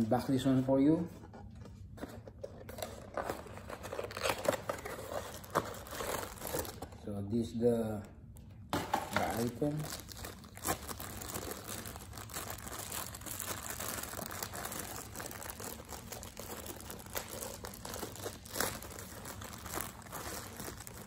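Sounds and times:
plastic bag crinkling: 2.8 - 7.0, 9.1 - 21.0.

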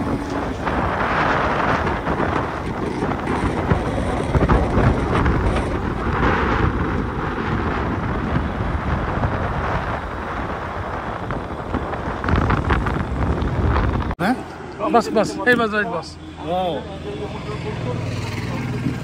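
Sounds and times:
motorcycle running: 0.0 - 14.2, 14.8 - 19.0
wind buffeting microphone: 0.0 - 14.2, 14.9 - 19.0.

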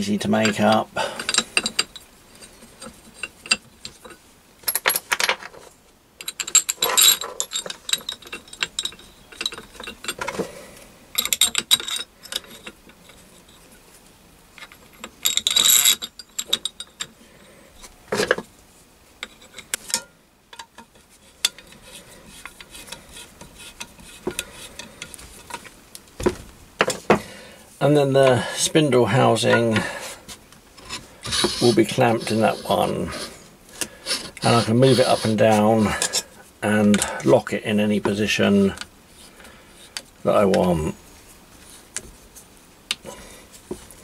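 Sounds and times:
metal parts clinking and scraping: 0.2 - 10.5, 11.1 - 13.8, 14.5 - 18.5, 19.2 - 27.2, 28.6 - 37.5.

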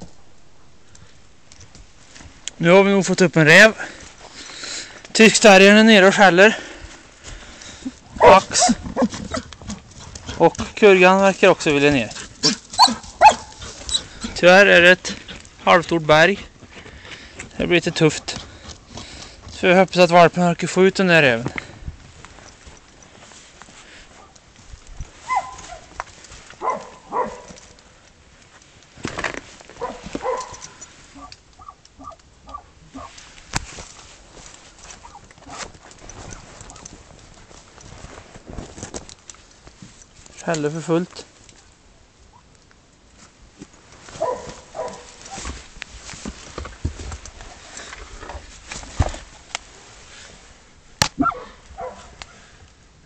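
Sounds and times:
knocking and scraping in earth: 6.9 - 20.0, 28.6 - 41.0, 43.2 - 50.4
dog barking underground: 8.1 - 10.8, 12.2 - 14.0, 25.2 - 26.0, 26.6 - 27.8, 29.8 - 33.1, 44.2 - 45.5, 51.1 - 52.2.

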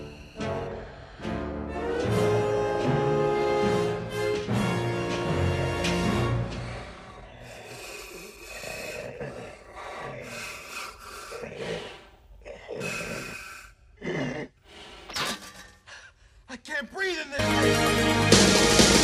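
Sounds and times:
man breathing heavily: 0.0 - 1.8, 6.0 - 14.0, 14.6 - 15.1.

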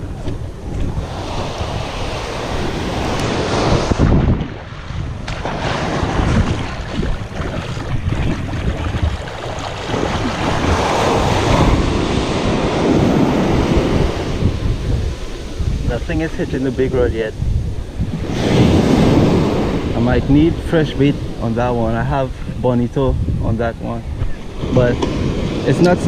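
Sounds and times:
ocean waves breaking on beach: 0.0 - 26.0
wind buffeting microphone: 0.0 - 26.0.

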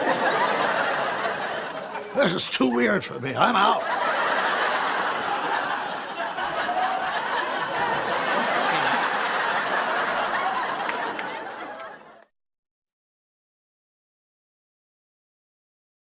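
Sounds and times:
audience laughing: 0.0 - 12.3.

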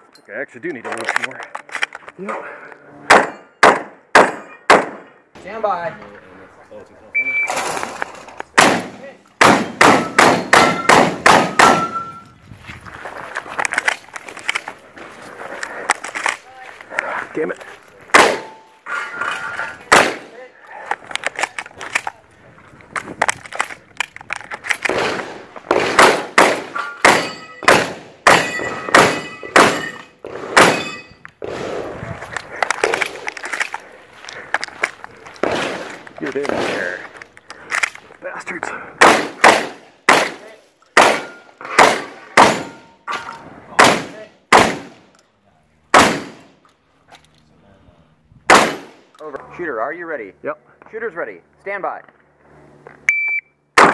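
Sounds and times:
shotgun shots: 3.1 - 5.1, 8.5 - 12.0, 18.1 - 18.6, 19.9 - 20.4, 24.8 - 31.8, 35.4 - 37.0, 39.0 - 42.9, 43.7 - 45.0, 45.9 - 46.5, 48.5 - 49.1
steel targets ringing: 9.8 - 12.3, 26.7 - 31.2.

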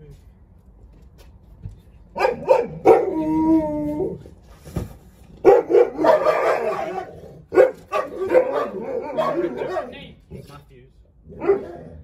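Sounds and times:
dogs barking: 2.1 - 3.3, 5.4 - 10.0, 11.3 - 12.0
dog howling: 2.7 - 4.2, 5.8 - 7.2, 8.1 - 9.9.

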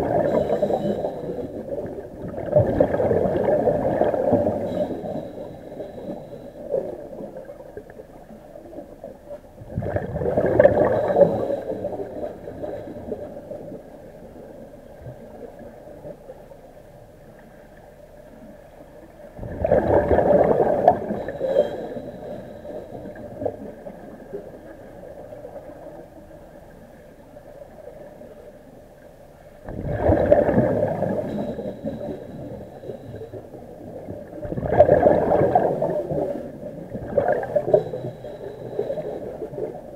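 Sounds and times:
faint steady high tone: 0.0 - 2.0
underwater bubbles gurgling: 0.0 - 39.9.

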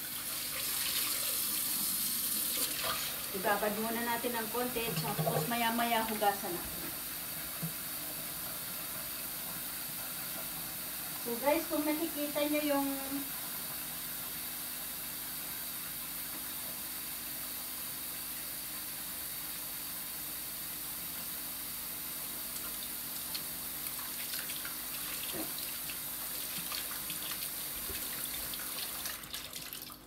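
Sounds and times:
light ticks and splashes: 22.5 - 30.0.

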